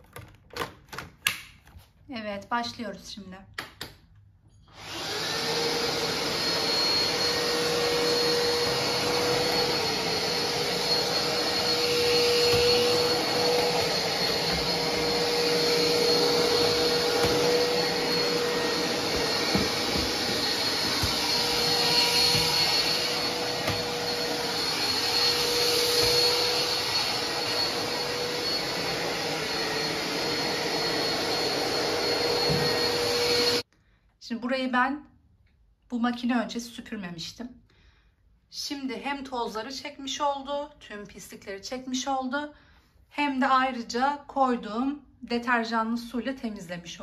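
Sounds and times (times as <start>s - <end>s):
vacuum cleaner motor whine: 4.7s - 33.6s.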